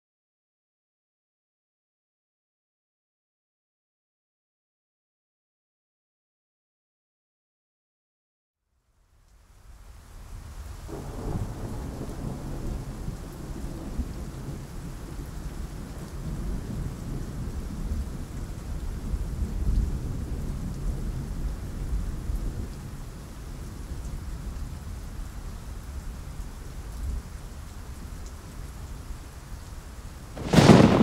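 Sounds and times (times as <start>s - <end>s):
rain: 8.6s - 31.0s
low rumbling thunder: 10.9s - 22.7s, 30.4s - 31.0s.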